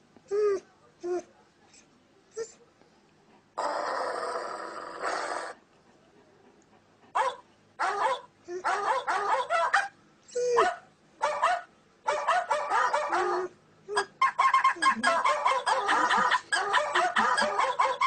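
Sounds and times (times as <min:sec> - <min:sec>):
dog barking: 0:07.2 - 0:10.0, 0:10.6 - 0:13.5, 0:14.2 - 0:18.0.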